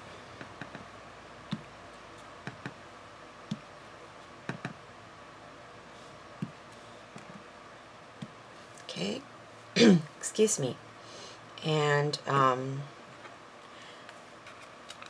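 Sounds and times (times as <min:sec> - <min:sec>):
rubber stamp tapping on card: 0:04.5 - 0:04.8.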